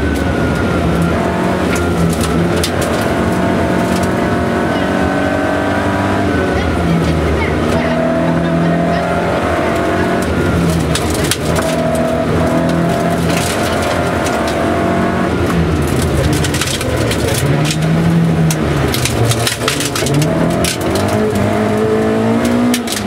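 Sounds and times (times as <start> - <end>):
rally car engine revving: 0.0 - 23.0
gravel clattering against underbody: 15.8 - 21.4.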